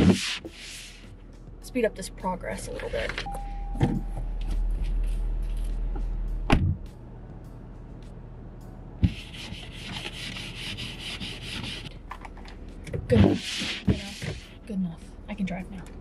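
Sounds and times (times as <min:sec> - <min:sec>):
hand rubbing frost off windshield: 0:00.0 - 0:01.1, 0:13.4 - 0:14.5
car door shutting: 0:06.4 - 0:06.9.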